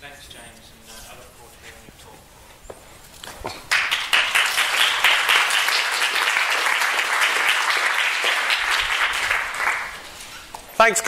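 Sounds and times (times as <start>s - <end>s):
audience applauding: 3.6s - 10.1s.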